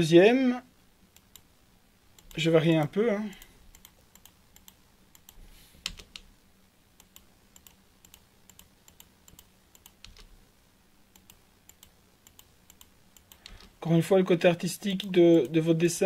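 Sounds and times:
computer mouse clicks: 1.2 - 1.5, 2.2 - 2.4, 3.3 - 6.3, 7.0 - 10.4, 11.1 - 13.8.

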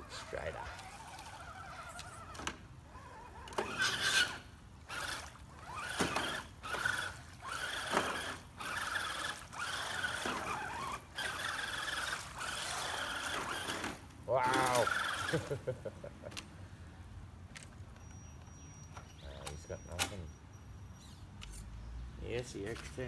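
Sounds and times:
electric motor whining in bursts: 0.0 - 15.7.

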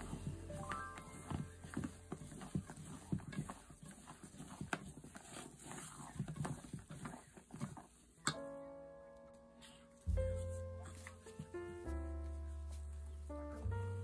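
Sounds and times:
sustained musical note: 0.0 - 1.9.

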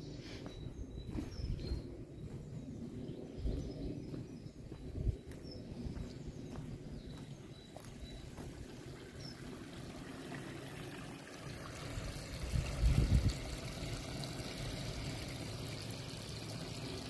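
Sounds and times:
wind buffeting microphone: 0.4 - 9.4, 11.8 - 14.1
water trickling over stone: 7.8 - 17.0.

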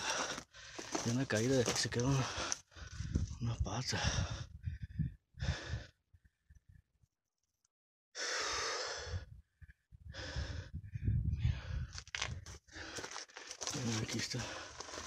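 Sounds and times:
scuffs and clicks on rock: 0.0 - 2.6, 12.0 - 15.0
heavy breathing: 2.1 - 3.1.

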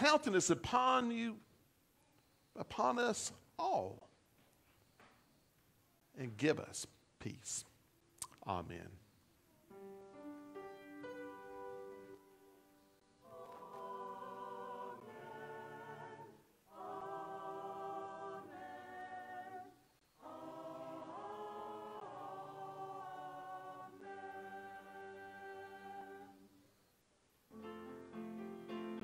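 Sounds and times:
church choir singing chords: 10.6 - 26.9.

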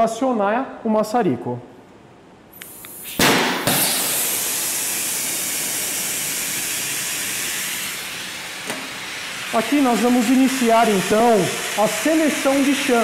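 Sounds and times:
torch flame igniting burst: 2.6 - 9.6
torch flame hissing: 2.6 - 13.0.

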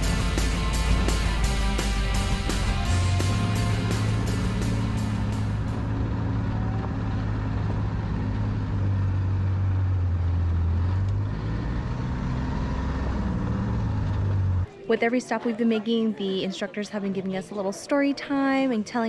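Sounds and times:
atv engine humming: 0.0 - 14.7.

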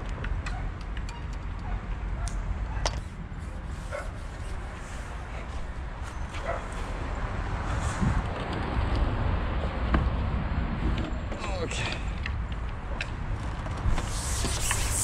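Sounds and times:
wind rumble on microphone: 1.6 - 11.3.

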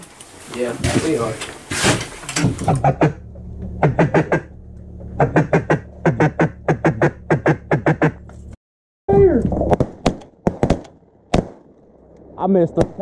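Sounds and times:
steady low hum: 0.0 - 13.0
duck call quacks: 5.2 - 8.2.

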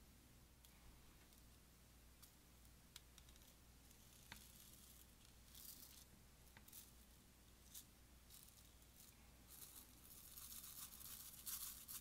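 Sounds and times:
beads pattering: 3.0 - 12.0
beads rattling onto slime: 7.7 - 12.0.

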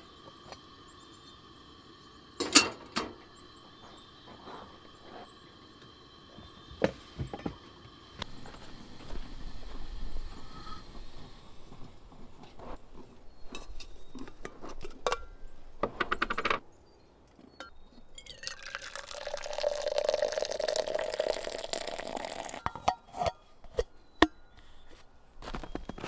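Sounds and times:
enamel coffee pot clinking: 0.1 - 7.6, 17.6 - 24.4
coffee pouring into metal cup: 18.2 - 22.9.

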